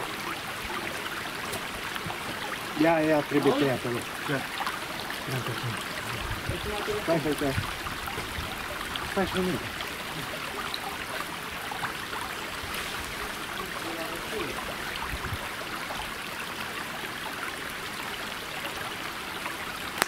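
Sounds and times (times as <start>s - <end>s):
running water rushing: 0.0s - 20.0s.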